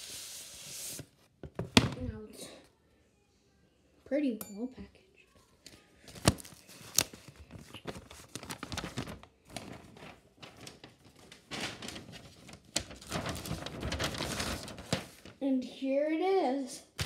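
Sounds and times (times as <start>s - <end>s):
paper and cardboard rustling: 5.7s - 15.4s.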